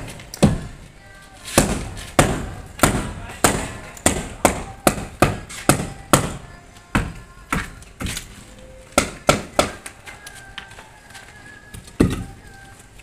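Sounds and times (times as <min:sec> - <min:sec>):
hammer striking concrete block: 0:00.1 - 0:00.7, 0:01.6 - 0:07.7, 0:09.0 - 0:09.9, 0:12.0 - 0:12.3.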